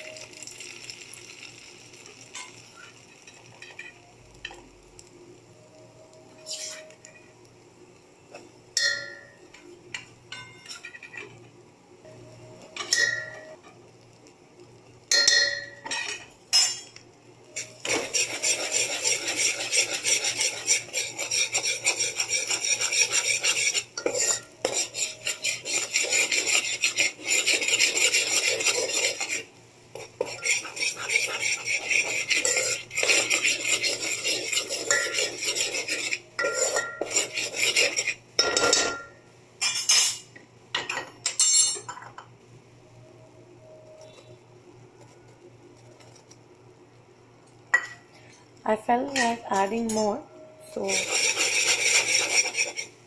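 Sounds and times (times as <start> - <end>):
spoon scraping a steel pot: 6.4 - 7.2, 17.6 - 40.2, 50.8 - 53.0.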